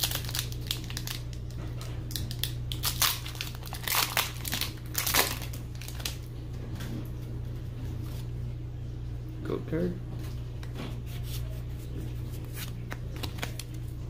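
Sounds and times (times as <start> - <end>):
foil wrapper crinkling: 0.0 - 6.3, 12.2 - 14.0.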